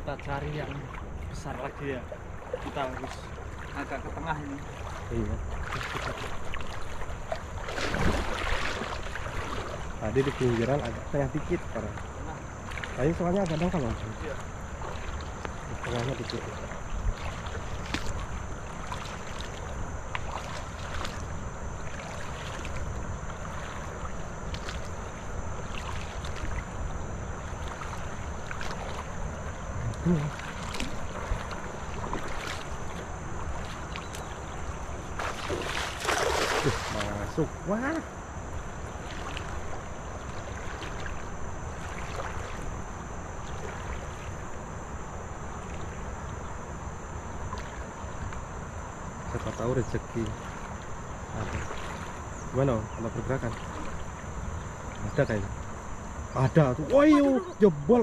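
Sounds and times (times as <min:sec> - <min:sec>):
wind rumble on microphone: 0:00.0 - 0:37.0
small water splashes: 0:00.0 - 0:46.6, 0:47.2 - 0:58.0
river water sloshing around legs: 0:00.0 - 0:58.0.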